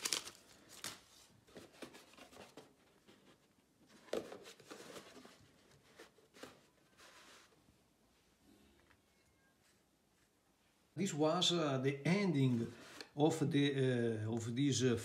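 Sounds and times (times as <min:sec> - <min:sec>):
paper rustling and crinkling: 0:00.0 - 0:07.6.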